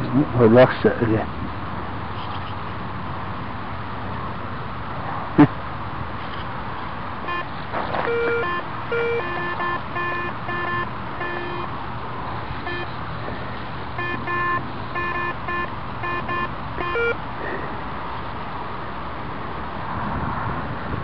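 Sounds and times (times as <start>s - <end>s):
metal detector beeping: 7.2s - 11.7s, 12.6s - 13.0s, 14.0s - 17.2s.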